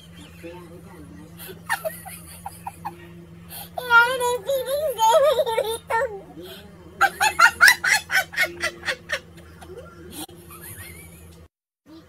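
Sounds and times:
woman laughing: 1.4 - 3.1, 7.0 - 11.3.

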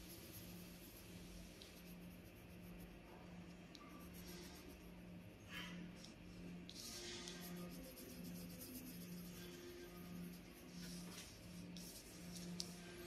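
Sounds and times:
pencil scratching on paper: 0.0 - 3.0, 3.8 - 5.0, 6.7 - 13.0
low steady hum: 0.0 - 13.0.

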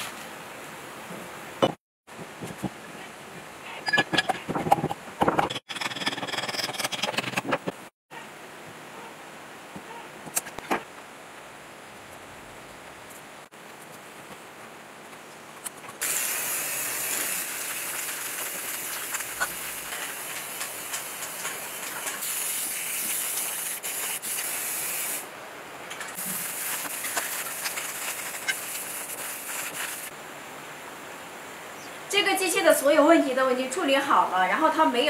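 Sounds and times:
spray-paint can hissing: 16.0 - 25.2, 26.2 - 30.1.

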